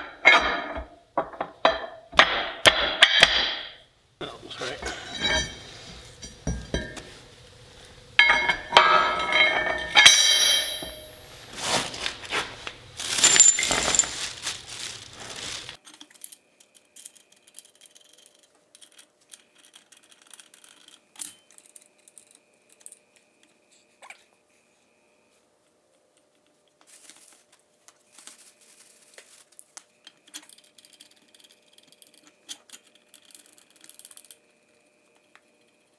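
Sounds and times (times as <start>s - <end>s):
steel parts clanking: 4.6s - 7.0s, 8.2s - 11.3s.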